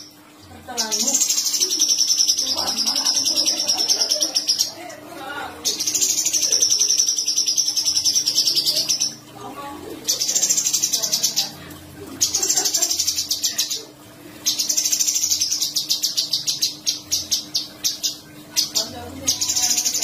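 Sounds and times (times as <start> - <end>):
bird singing rolling trills: 0.0 - 20.0.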